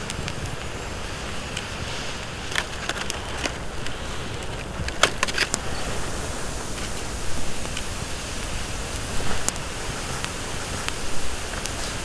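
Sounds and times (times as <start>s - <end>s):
burning wood crackling: 0.0s - 12.0s
rushing outdoor background: 0.0s - 12.0s
aluminium foil crinkling: 2.3s - 5.7s.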